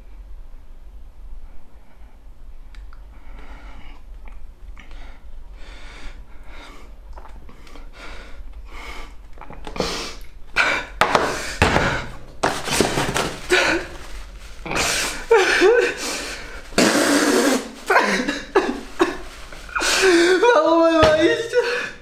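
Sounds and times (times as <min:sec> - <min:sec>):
man sniffling and sobbing: 0:13.1 - 0:22.0.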